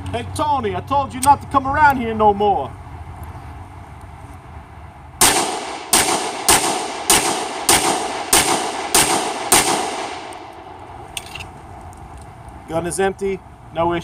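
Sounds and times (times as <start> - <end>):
pistol shots with echo: 5.2 - 10.9.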